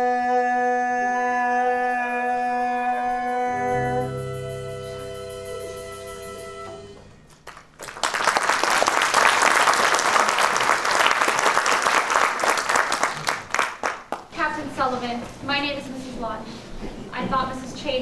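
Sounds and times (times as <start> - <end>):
held instrumental chord: 2.6 - 7.4
audience applauding: 7.3 - 14.3.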